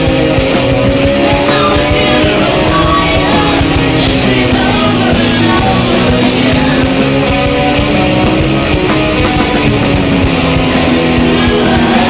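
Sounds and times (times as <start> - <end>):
rock music with guitar: 0.0 - 12.0.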